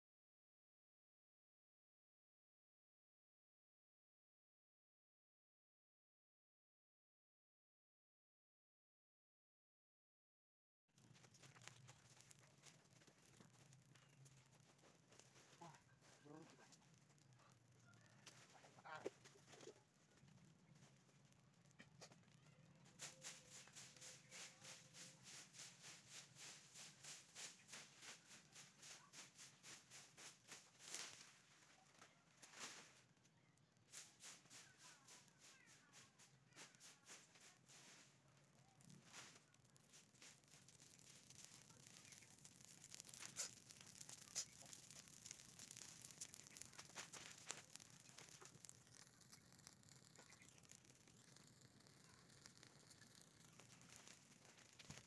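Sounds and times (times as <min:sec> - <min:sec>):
burning leaves crackling: 0:11.0 - 0:55.0
fire popping: 0:11.0 - 0:55.0
soft hiss: 0:22.0 - 0:55.0
dry leaves being swept: 0:23.0 - 0:31.2.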